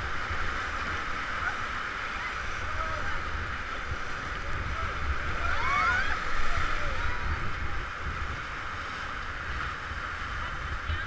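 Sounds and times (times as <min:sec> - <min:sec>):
whitewater rushing and splashing: 0:00.0 - 0:11.0
wind rumble on microphone: 0:00.0 - 0:11.0
people whooping: 0:05.4 - 0:07.0.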